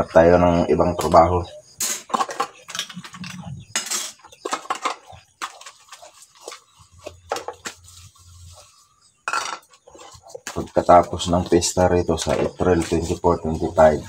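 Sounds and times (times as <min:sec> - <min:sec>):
sponge scrubbing dishes: 0:02.1 - 0:09.0
dishes clinking: 0:09.2 - 0:10.2.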